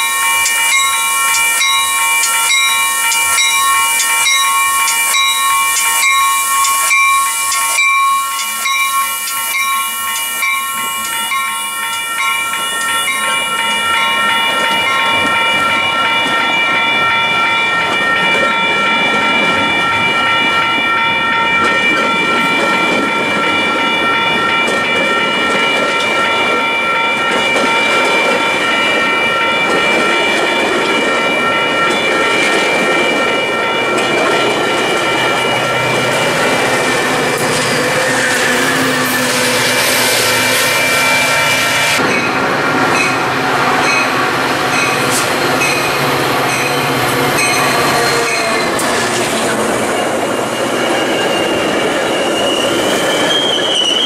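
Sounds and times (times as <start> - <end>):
train whine with hiss: 0.0 - 15.4, 35.3 - 54.0
train wheels clicking: 0.0 - 16.8, 21.4 - 54.0.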